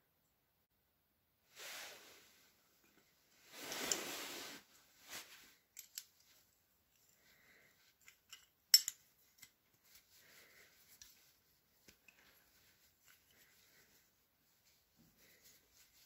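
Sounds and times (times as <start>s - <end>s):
metal hinge clicks and scrapes: 8.0s - 9.6s.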